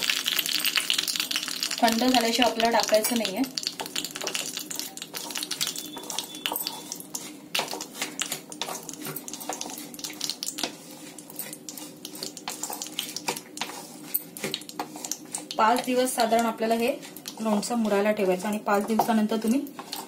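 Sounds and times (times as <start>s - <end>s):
small pops and crackles: 0.0s - 10.8s, 14.4s - 16.5s
hot oil sizzling in a pan: 0.0s - 20.0s.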